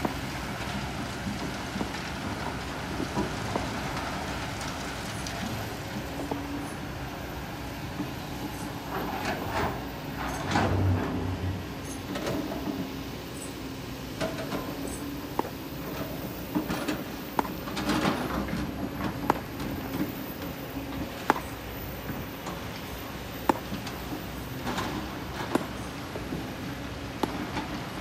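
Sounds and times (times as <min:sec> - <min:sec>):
excavator diesel engine running: 0:00.0 - 0:28.0.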